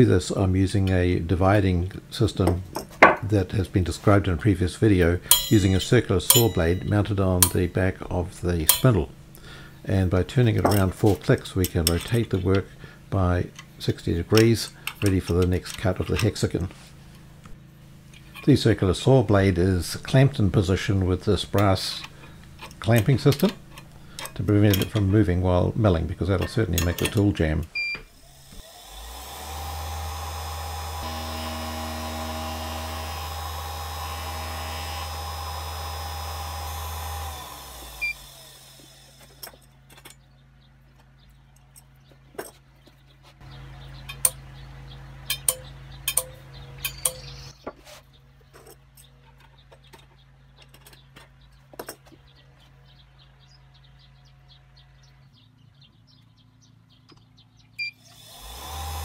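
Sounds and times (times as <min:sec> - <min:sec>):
electric motor humming: 0:28.1 - 0:39.5, 0:58.0 - 0:59.0
motor spinning down: 0:28.2 - 0:39.4, 0:58.0 - 0:59.0
clicks and taps from handling tools: 0:45.3 - 0:47.8.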